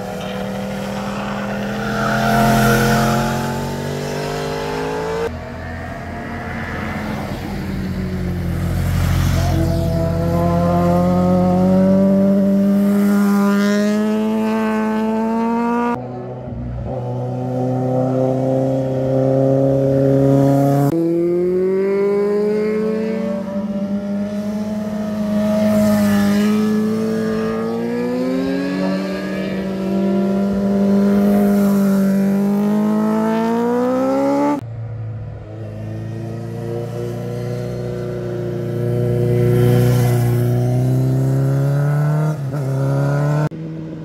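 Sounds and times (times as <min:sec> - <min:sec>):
motorcycle engines accelerating: 0:00.0 - 0:05.6, 0:06.2 - 0:34.6, 0:35.4 - 0:44.0.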